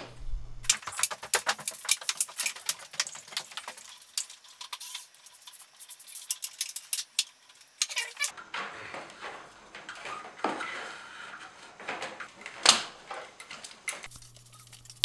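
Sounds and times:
plastic pipes clicking and tapping: 0:00.7 - 0:10.7.

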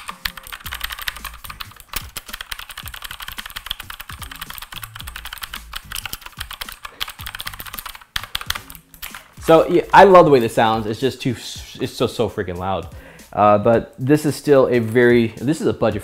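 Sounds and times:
mechanical keyboard typing: 0:00.0 - 0:09.3.

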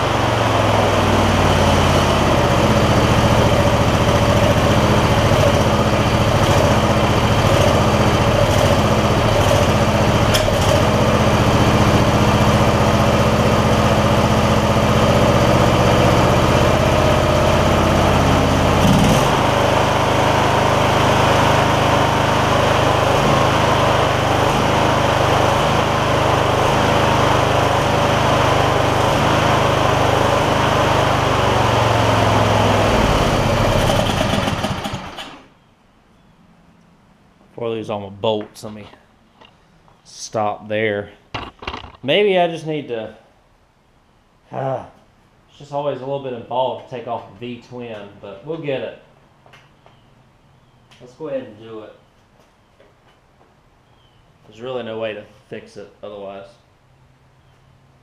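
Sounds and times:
small engine running: 0:00.0 - 0:35.5.

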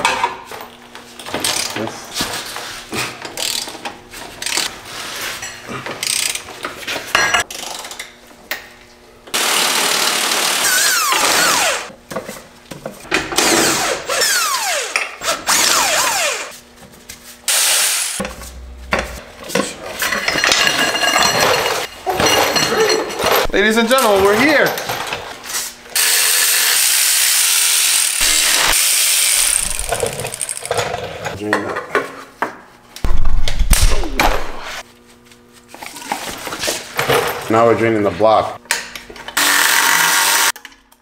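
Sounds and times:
power tools whirring: 0:09.3 - 0:11.9, 0:13.4 - 0:16.5, 0:17.5 - 0:19.2, 0:25.9 - 0:30.8, 0:39.3 - 0:40.6
hand tools clanking: 0:18.2 - 0:25.3.

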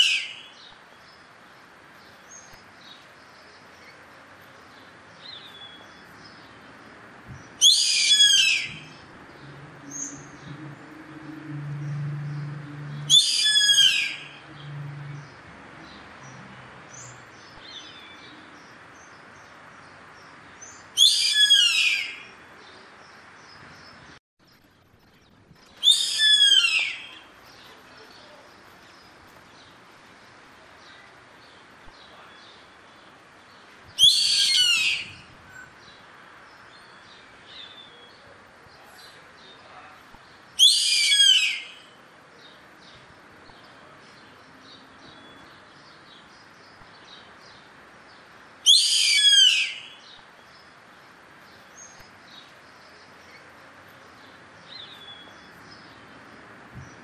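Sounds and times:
bird high-pitched calls: 0:07.6 - 0:09.0, 0:13.0 - 0:14.8, 0:21.0 - 0:22.3, 0:25.8 - 0:27.3, 0:34.0 - 0:35.7, 0:40.6 - 0:42.0, 0:48.6 - 0:50.2.

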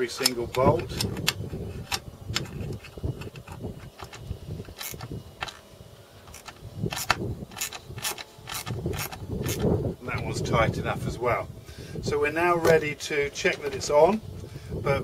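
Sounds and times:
socket ratchet clicking: 0:00.2 - 0:05.6, 0:06.3 - 0:09.7.

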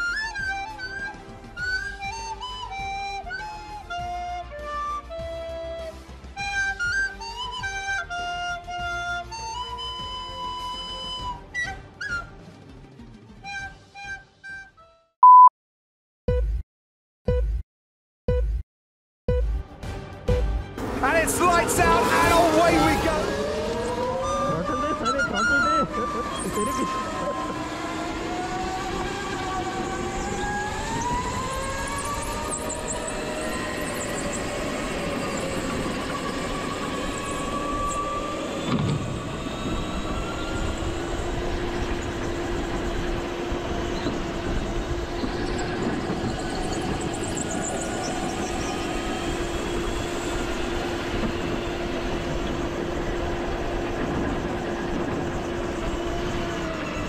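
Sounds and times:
go-kart engine running hard: 0:20.8 - 0:57.0.

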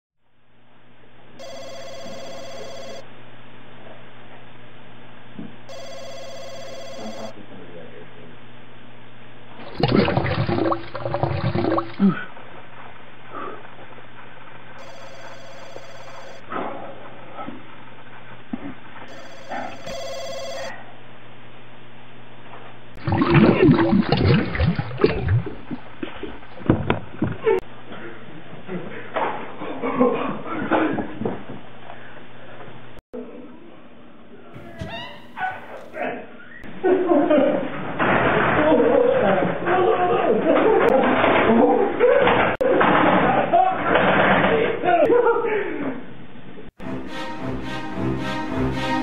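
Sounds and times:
electronic telephone ringing: 0:01.4 - 0:03.0, 0:05.7 - 0:07.4, 0:14.8 - 0:16.4, 0:19.1 - 0:20.8
stomach gurgling and rumbling: 0:09.6 - 0:12.3, 0:23.0 - 0:27.6.

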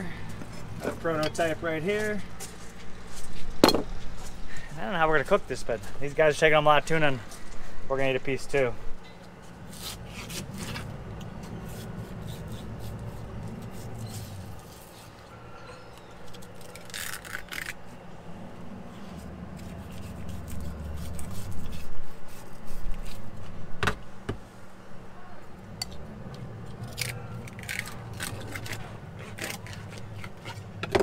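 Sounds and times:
knife scraping fish skin: 0:09.7 - 0:15.2, 0:19.1 - 0:23.4, 0:26.8 - 0:30.7.

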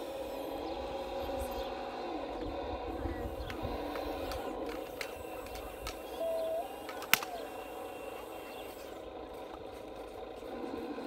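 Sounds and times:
toy motor and gearbox whirring: 0:02.9 - 0:09.0
sharp click: 0:06.9 - 0:07.4.

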